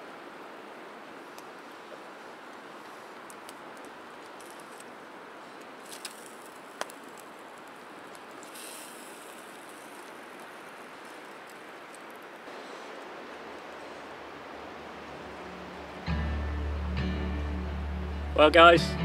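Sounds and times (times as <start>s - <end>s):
steady hiss: 0.0s - 17.0s
campfire crackling: 0.1s - 19.0s
sharp fire pops: 5.9s - 7.3s.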